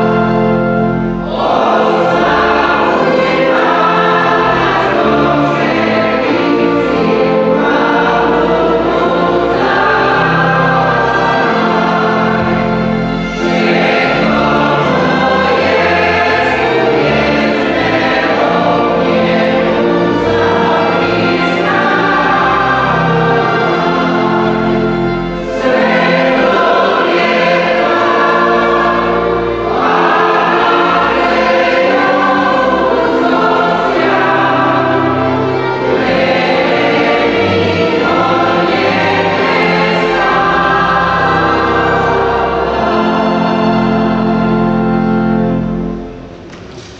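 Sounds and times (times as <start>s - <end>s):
choir singing a hymn: 0.0s - 46.8s.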